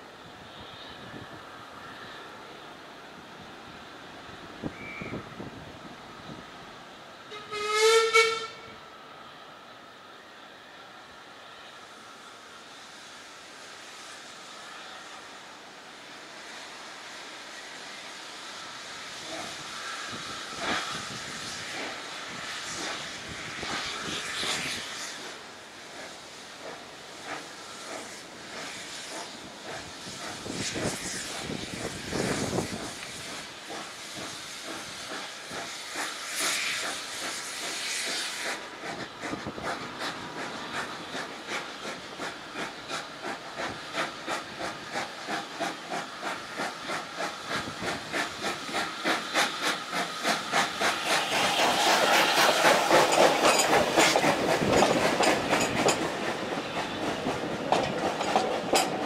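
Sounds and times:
steam hissing: 0:00.0 - 0:59.0
steam locomotive chuffing: 0:10.8 - 0:59.0.

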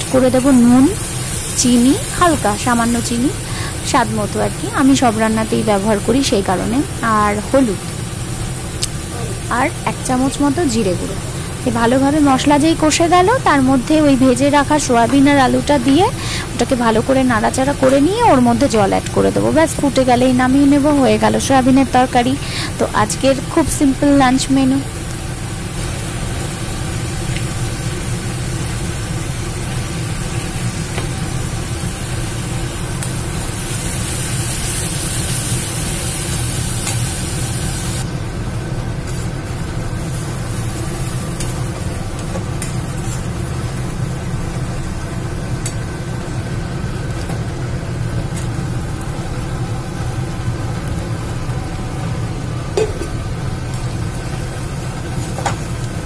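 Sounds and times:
spice paste sizzling in oil: 0:00.0 - 0:56.0.

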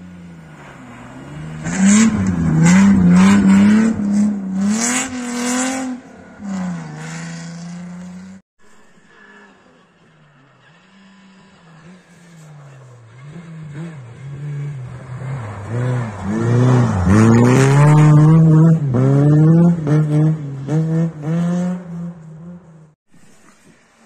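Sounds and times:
rally car engine passing by: 0:09.0 - 0:22.7.

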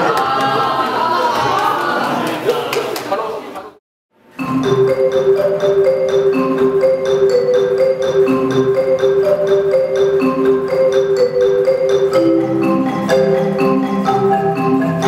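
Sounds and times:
marimba runs: 0:04.4 - 0:15.0.

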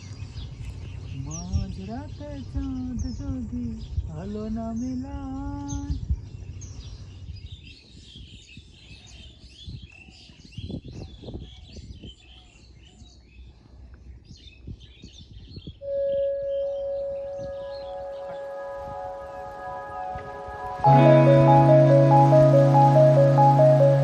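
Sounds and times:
small birds chirping: 0:00.0 - 0:18.5.

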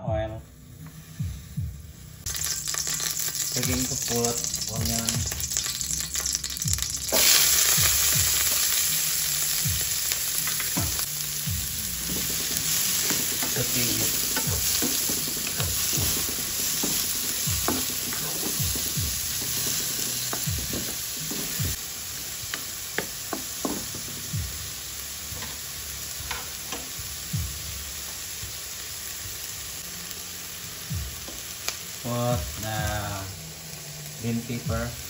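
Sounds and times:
onion sizzling in hot oil: 0:01.0 - 0:35.0
spatula scraping and knocking pan: 0:12.0 - 0:21.8.

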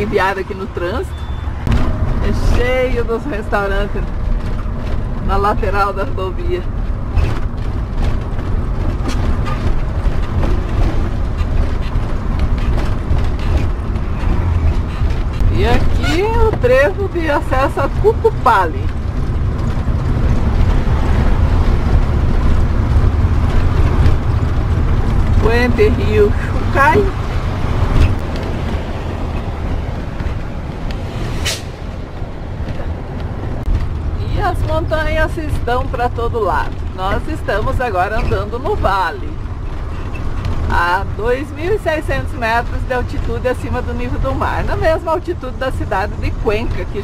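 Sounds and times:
bus engine and tyres rumbling: 0:00.0 - 0:47.0
light rattles and knocks: 0:01.7 - 0:31.0.

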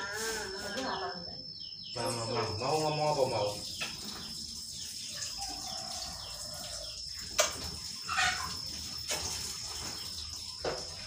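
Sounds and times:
water splashing in a basin: 0:03.1 - 0:11.0.

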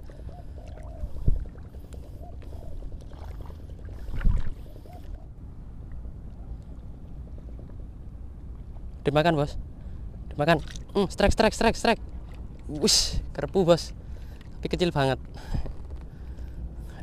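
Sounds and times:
sea water sloshing around legs: 0:00.0 - 0:05.3, 0:10.4 - 0:11.1
steady low rumble: 0:00.0 - 0:17.0.

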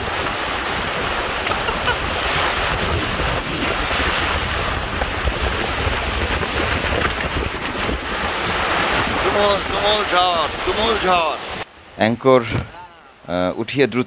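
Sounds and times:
wind rumbling on microphone: 0:00.0 - 0:11.6
heavy rain on river: 0:00.0 - 0:11.7.

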